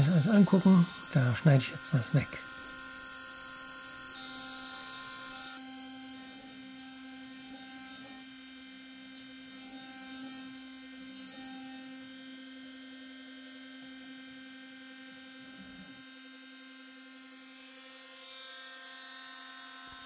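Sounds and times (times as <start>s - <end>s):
milling machine spindle running: 0.0s - 8.3s.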